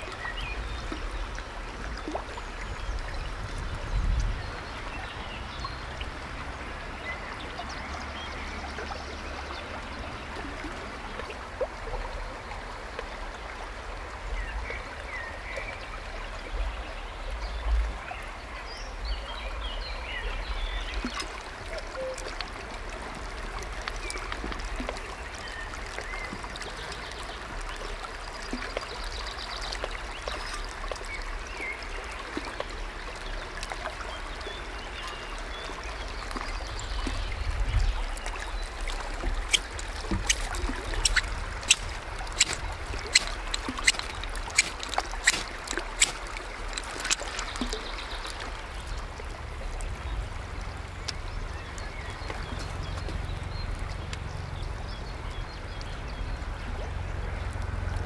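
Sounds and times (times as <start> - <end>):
river flowing over stones: 0.0 - 58.0
small birds chirping: 36.6 - 48.4.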